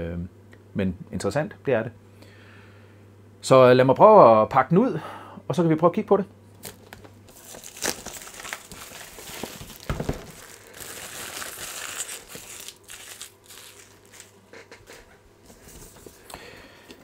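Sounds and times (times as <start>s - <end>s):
plastic wrap crinkling and tearing: 6.6s - 14.5s.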